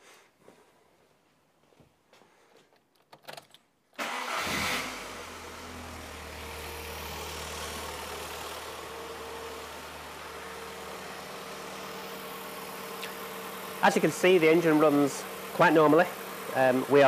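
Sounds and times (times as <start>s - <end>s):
car engine idling: 4.0s - 17.0s.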